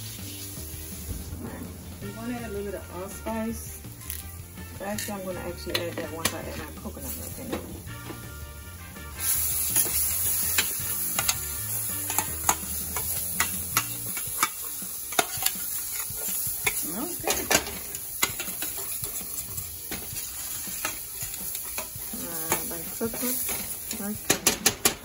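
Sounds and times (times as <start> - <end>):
spices sizzling in oil: 0.0 - 25.0.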